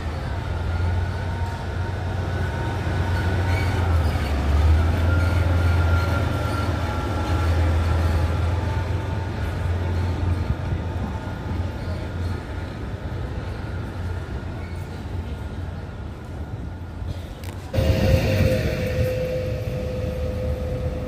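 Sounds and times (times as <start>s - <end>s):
diesel locomotive engine rumble: 0.0s - 21.0s
faint thin whine: 17.8s - 21.0s.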